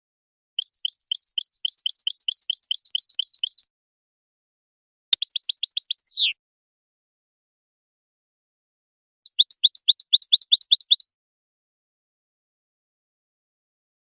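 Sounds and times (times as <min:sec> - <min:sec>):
finch high chirping song: 0:00.6 - 0:03.7, 0:05.2 - 0:06.4, 0:09.3 - 0:11.1.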